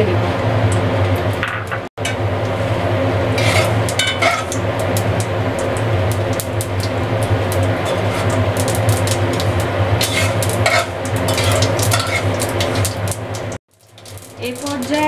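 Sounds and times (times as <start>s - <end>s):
steady low hum: 0.0s - 15.0s
seeds and chillies frying in oil: 2.0s - 15.0s
metal spatula scraping pan: 3.3s - 4.6s, 7.8s - 13.0s
small crackles and pops: 3.8s - 15.0s.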